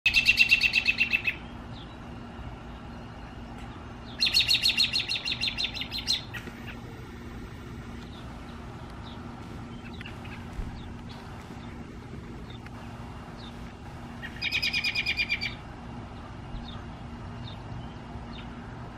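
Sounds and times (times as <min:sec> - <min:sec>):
robin calling: 0:00.1 - 0:18.6.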